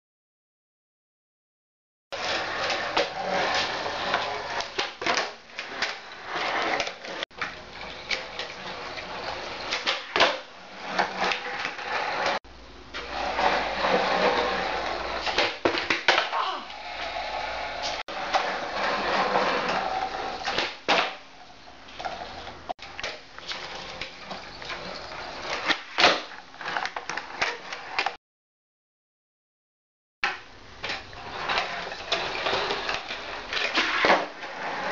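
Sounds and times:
skateboard wheels rolling on concrete: 2.1s - 28.2s, 30.2s - 34.9s
skateboard cracking and clattering: 2.2s - 12.4s, 13.0s - 16.4s, 18.1s - 21.3s, 22.0s - 28.2s, 30.2s - 34.9s.

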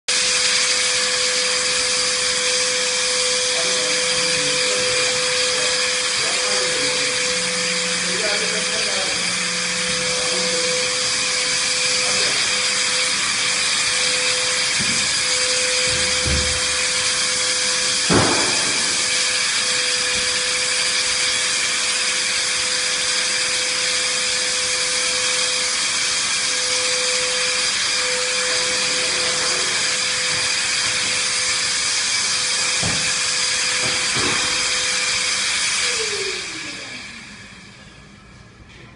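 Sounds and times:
fogger spraying mist: 0.1s - 37.9s
fogger motor tone: 0.1s - 38.8s
knock: 18.1s - 18.8s.

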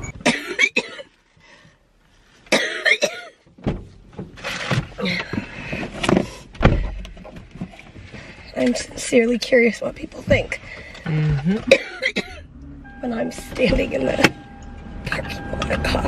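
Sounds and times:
woman coughing hard: 0.2s - 1.1s, 2.5s - 3.4s, 11.7s - 12.5s
dull low thump: 3.6s - 4.3s.

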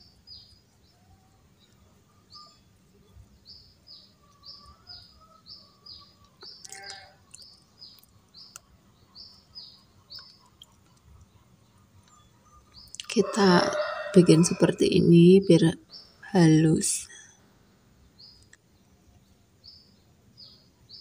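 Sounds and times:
small bird chirping: 0.0s - 13.7s, 17.9s - 21.0s.

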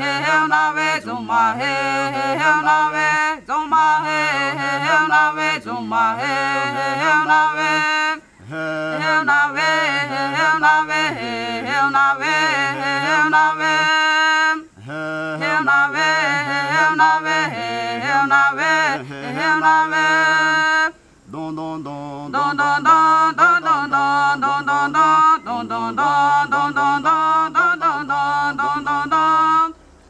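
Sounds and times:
man and woman chanting: 0.0s - 29.9s.

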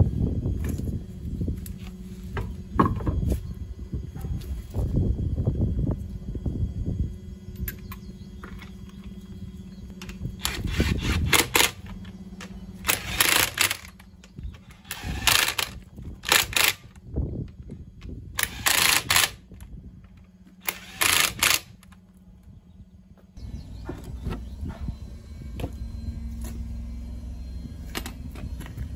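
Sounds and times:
impact wrench hammering bursts: 12.8s - 14.0s, 20.6s - 21.8s.

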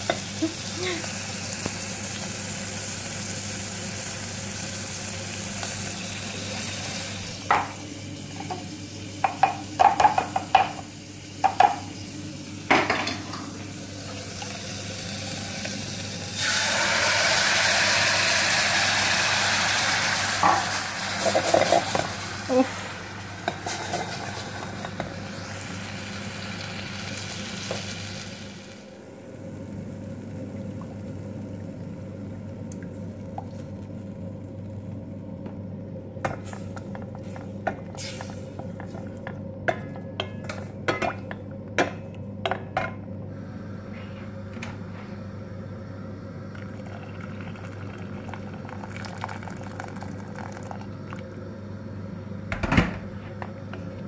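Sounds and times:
wooden spoon knocking a pan: 9.2s - 10.8s
paste sizzling in a saucepan: 13.8s - 28.9s, 37.4s - 38.6s
steady low hum: 20.4s - 54.0s
liquid pouring into pan: 46.5s - 51.2s.

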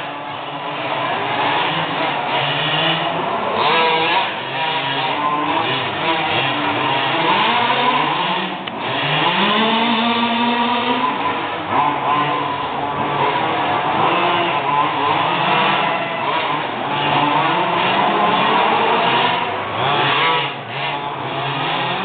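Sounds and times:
small two-stroke engines revving: 0.0s - 22.0s.

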